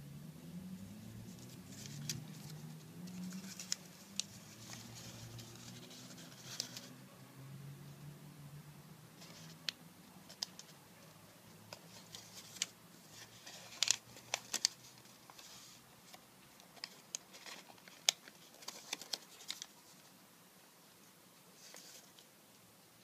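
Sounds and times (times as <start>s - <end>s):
paper folding and creasing: 1.2s - 7.0s, 9.2s - 10.8s, 11.7s - 20.1s, 21.6s - 22.3s.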